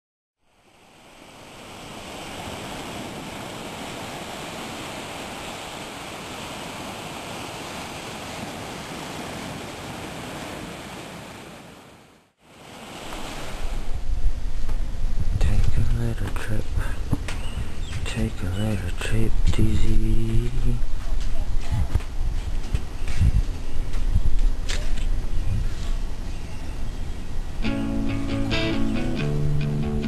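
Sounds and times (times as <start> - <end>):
ocean surf breaking on beach: 0.4 - 20.8.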